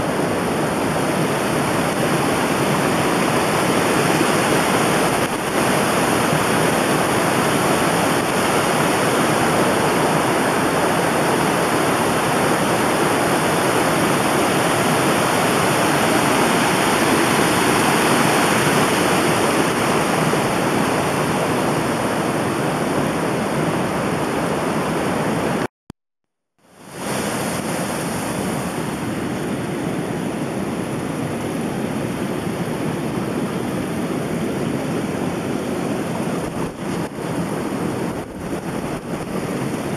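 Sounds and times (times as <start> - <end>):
rushing water: 0.0 - 25.7, 26.6 - 39.9.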